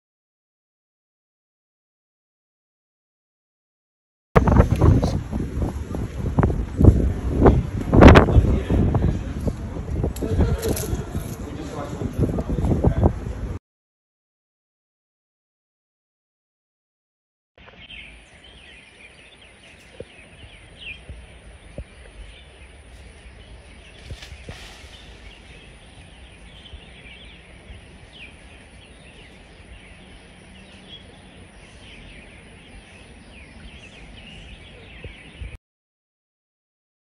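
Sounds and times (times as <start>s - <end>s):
constant high whine: 17.6s - 35.6s
high bird chirps: 17.6s - 35.6s
background hiss: 17.8s - 33.2s.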